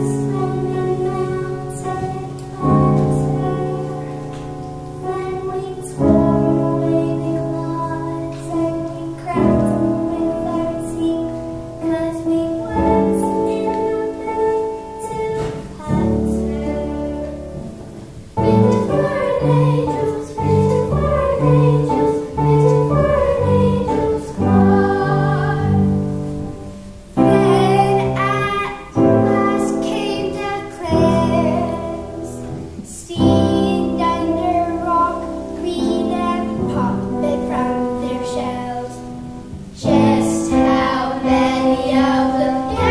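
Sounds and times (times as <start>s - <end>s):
girls singing: 0.0s - 42.9s
piano accompaniment: 0.0s - 42.9s.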